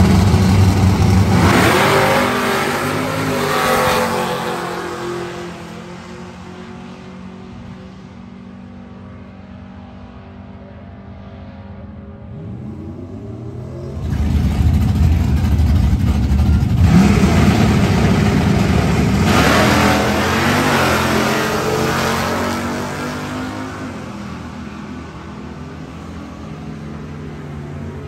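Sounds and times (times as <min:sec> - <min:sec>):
drag-race engines accelerating: 0:00.0 - 0:28.0.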